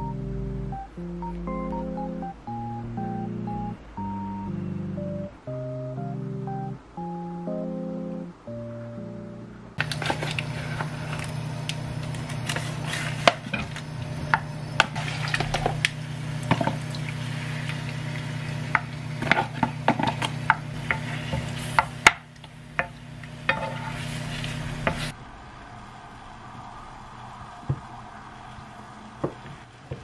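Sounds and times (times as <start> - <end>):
steady low hum: 0.0 - 29.2
soft sizzle: 9.8 - 25.2
chopsticks scraping frying pan: 12.2 - 15.8, 18.7 - 22.1, 22.8 - 25.2
utensils clicking on pan: 18.7 - 25.1.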